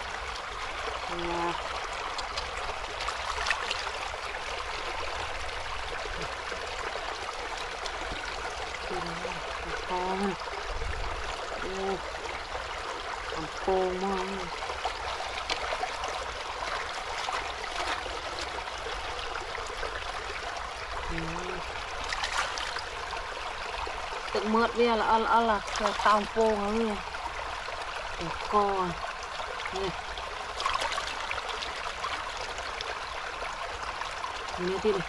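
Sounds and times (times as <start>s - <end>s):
running water rushing: 0.0s - 35.0s
woman humming: 21.1s - 21.6s.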